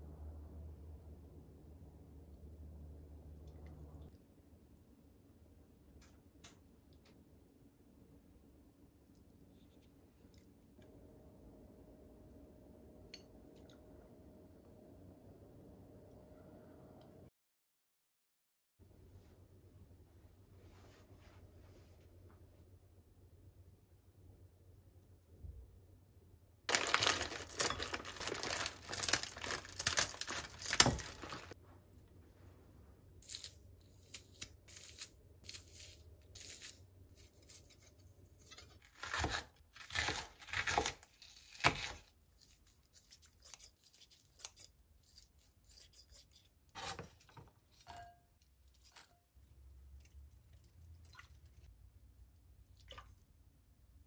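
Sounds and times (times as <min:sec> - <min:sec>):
plastic packaging tearing: 0:26.7 - 0:31.6
knife slicing onion: 0:33.2 - 0:49.1.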